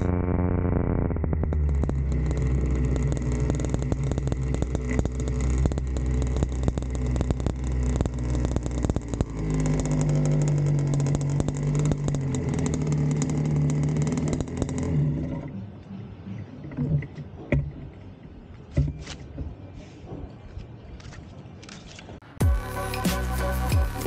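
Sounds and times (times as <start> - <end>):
small motorbike engine running: 0.0 - 15.4.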